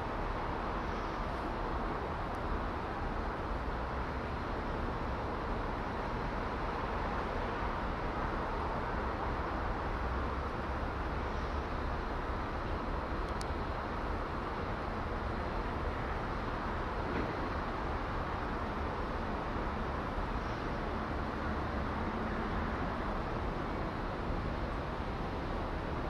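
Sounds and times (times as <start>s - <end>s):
small click: 13.2s - 13.5s.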